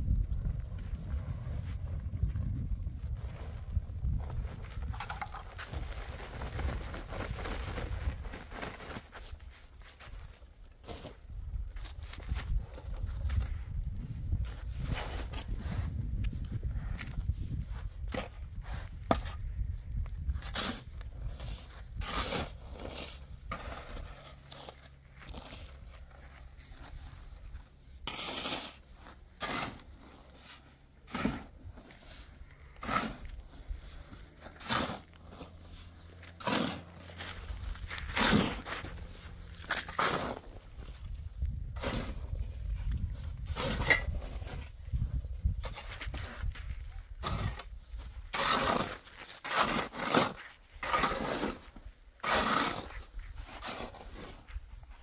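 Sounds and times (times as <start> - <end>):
shovel digging into gravelly dirt: 20.2 - 54.6.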